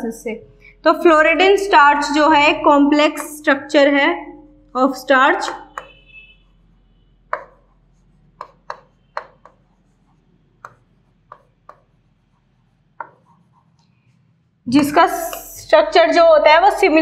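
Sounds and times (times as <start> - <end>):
chalk tapping on blackboard: 3.0 - 3.5, 5.3 - 15.7.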